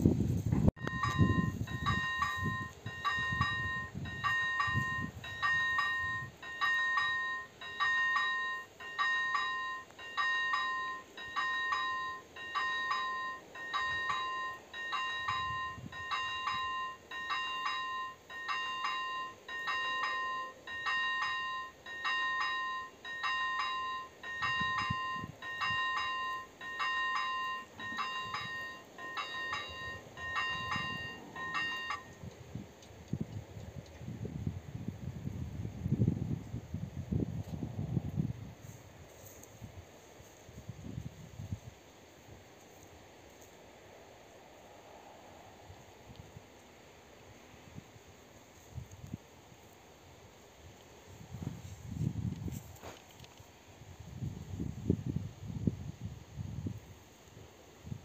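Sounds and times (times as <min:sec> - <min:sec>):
level crossing warning bell: 0:00.8 - 0:32.4.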